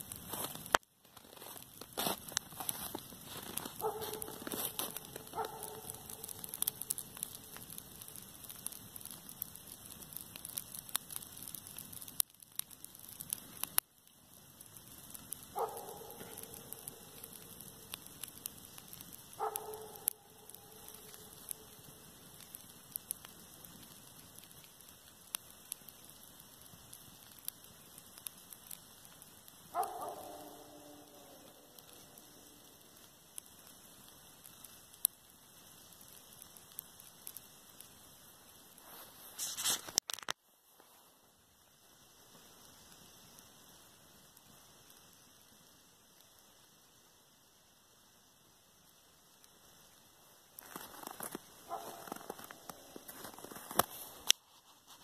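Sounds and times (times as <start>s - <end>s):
dry grass crackling as it burns: 0.0s - 55.0s
dog barking: 3.8s - 4.4s, 5.2s - 6.5s, 15.6s - 17.0s, 19.4s - 20.2s, 29.7s - 31.6s, 51.7s - 52.0s.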